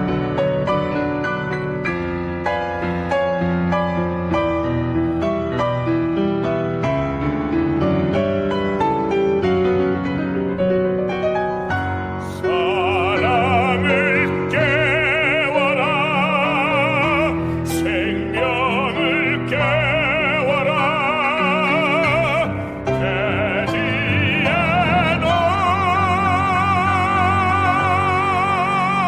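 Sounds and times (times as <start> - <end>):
baritone singing with vibrato: 12.2 - 29.0.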